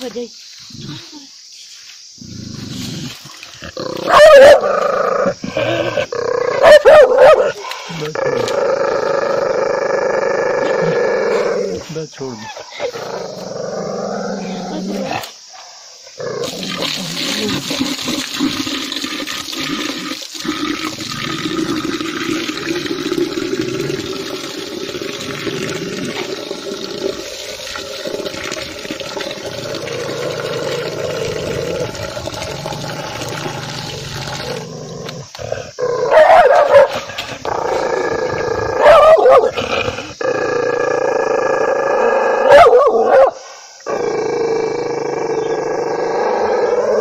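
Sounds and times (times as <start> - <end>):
dog barking: 4.1 - 4.6, 6.6 - 7.6, 36.1 - 37.0, 38.8 - 39.6, 42.4 - 43.4
dog growling: 33.4 - 43.3.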